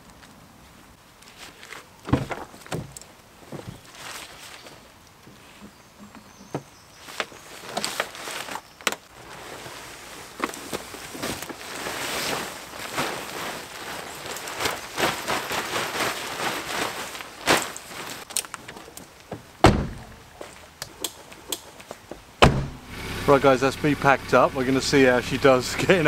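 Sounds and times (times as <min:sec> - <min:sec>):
fabric rustling and flapping: 0:01.2 - 0:05.6, 0:06.9 - 0:20.8
sharp clicks and knocks: 0:20.8 - 0:22.8.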